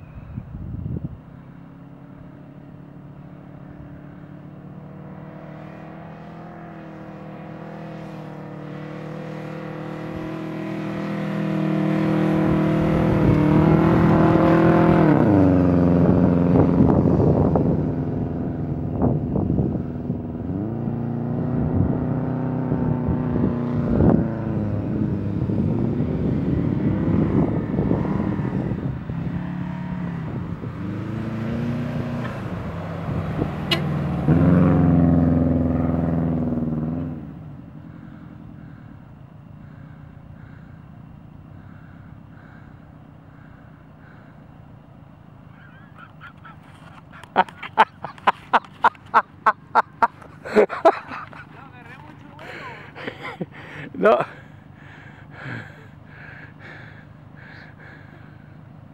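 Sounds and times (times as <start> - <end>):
car engine revving hard: 4.8 - 19.1, 20.1 - 37.3.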